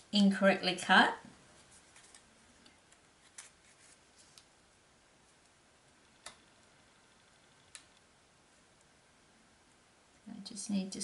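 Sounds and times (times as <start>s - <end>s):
light rustles of paper: 1.6s - 4.5s.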